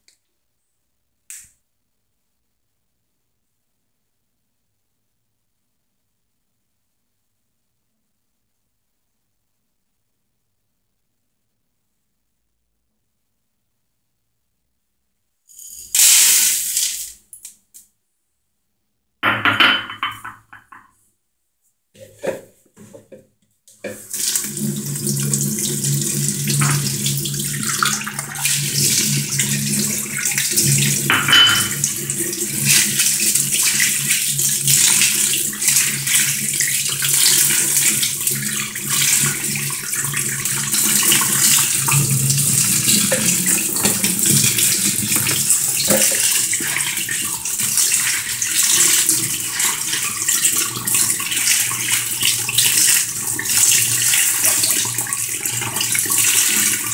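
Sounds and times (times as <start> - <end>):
tap water running into sink: 19.2 - 20.8, 22.2 - 56.9.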